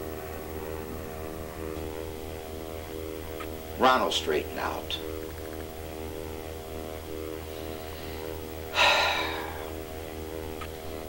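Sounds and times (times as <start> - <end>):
electrical hum: 0.0 - 11.0
man breathing out heavily: 7.5 - 9.8.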